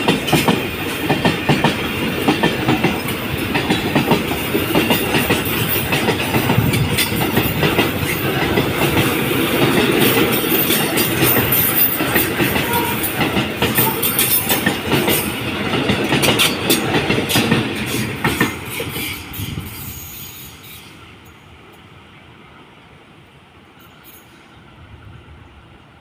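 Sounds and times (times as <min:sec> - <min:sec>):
train wheels clacking over rail joints: 0:00.0 - 0:20.9.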